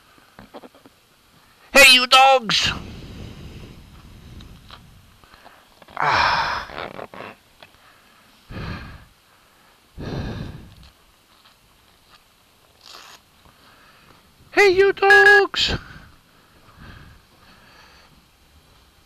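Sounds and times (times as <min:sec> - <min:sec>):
breathy exhalations: 0:05.2 - 0:10.9, 0:15.7 - 0:18.2.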